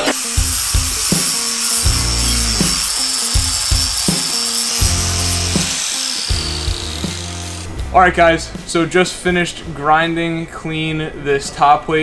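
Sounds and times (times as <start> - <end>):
angle grinder grinding metal: 0.0 - 7.8
background music with beat: 0.0 - 9.7.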